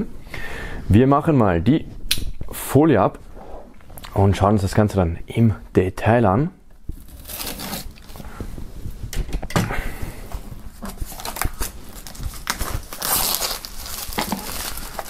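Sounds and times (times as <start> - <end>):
plastic film crinkling and tearing: 7.0 - 8.2, 10.8 - 15.0.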